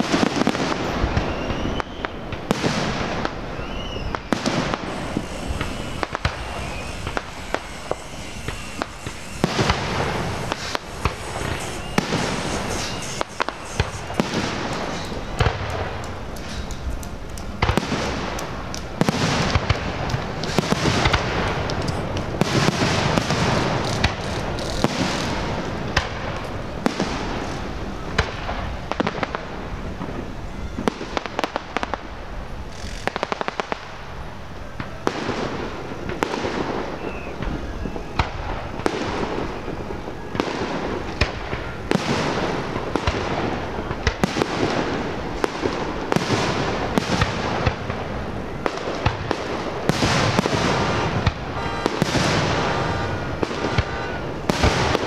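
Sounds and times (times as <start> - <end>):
fireworks bursting: 0.0 - 55.0
fireworks crackling: 0.0 - 55.0.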